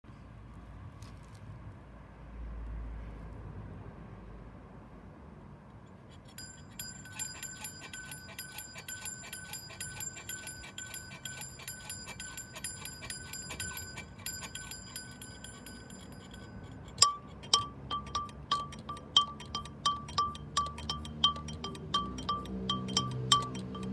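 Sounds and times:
flower-pot bell clinking: 6.3 - 23.9
high bell struck rapidly: 6.4 - 23.9.

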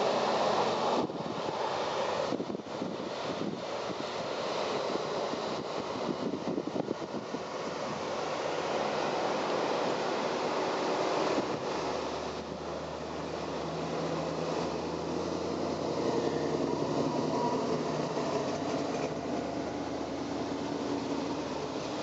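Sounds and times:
cars driving past: 7.6 - 22.0.

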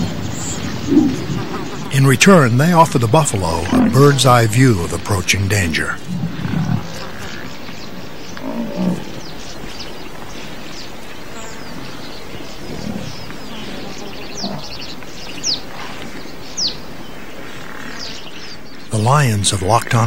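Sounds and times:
background hiss: 0.0 - 20.0
large animal grunting: 2.7 - 5.1.

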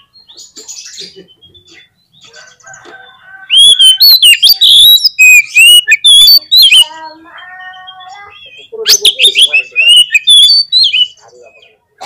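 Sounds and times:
bird chirps: 0.0 - 11.8
bird whistling song: 3.0 - 11.2.

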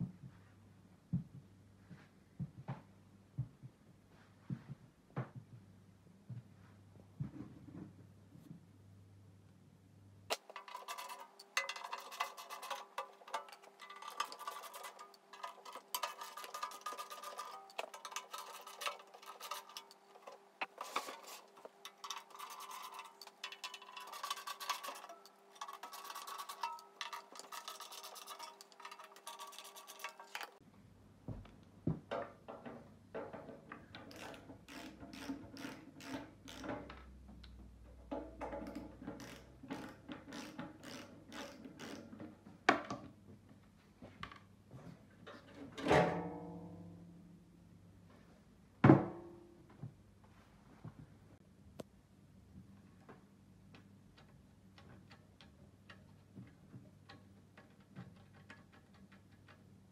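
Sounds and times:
metallic clicks and scrapes: 10.3 - 30.6, 33.2 - 37.2, 38.0 - 42.3, 53.8 - 59.9.

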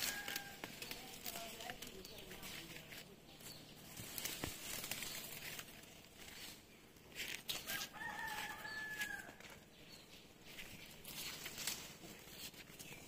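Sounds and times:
rooster crowing: 0.0 - 0.7, 7.6 - 9.6
rustling: 0.0 - 9.6, 10.5 - 13.0.

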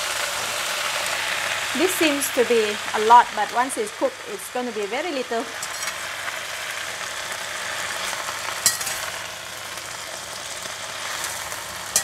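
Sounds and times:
vegetables sizzling in oil: 0.0 - 12.0
spatula clinking against wok: 5.6 - 6.0, 8.6 - 9.2.

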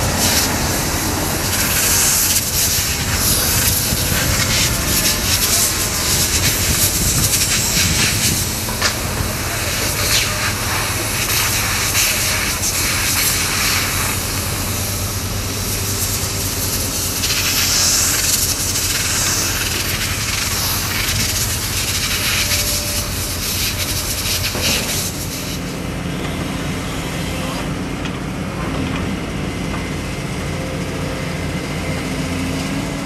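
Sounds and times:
rush of noise: 0.0 - 14.6
hiss: 0.0 - 25.8
diesel engines droning: 0.0 - 33.0.

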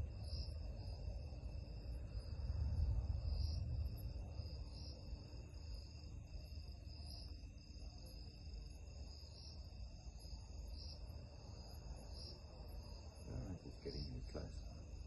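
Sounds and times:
low rumble: 0.0 - 5.4
crickets trilling: 0.0 - 15.0.

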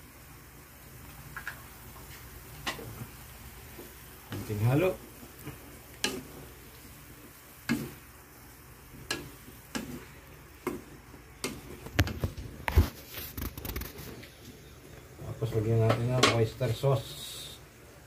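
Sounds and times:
faint sizzle: 0.0 - 18.0
spatula knocking and scraping wok: 2.6 - 3.1, 3.7 - 6.6, 7.6 - 8.1, 8.9 - 13.9, 15.8 - 16.5.

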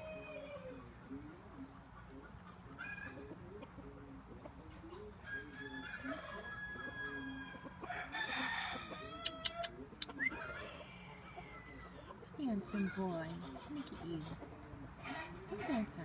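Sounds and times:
rooster crowing: 0.0 - 0.8, 5.2 - 9.7
chickens clucking: 0.0 - 16.0.

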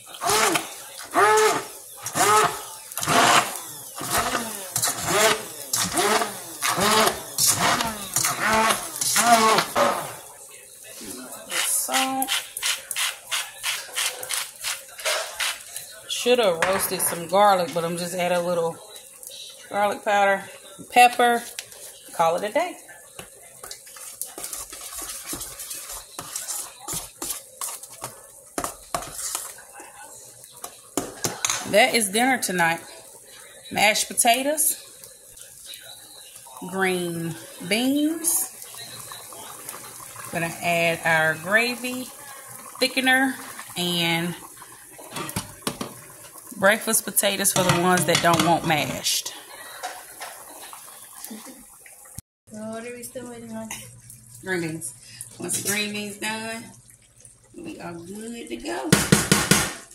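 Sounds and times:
immersion blender mashing potatoes: 0.0 - 10.4.

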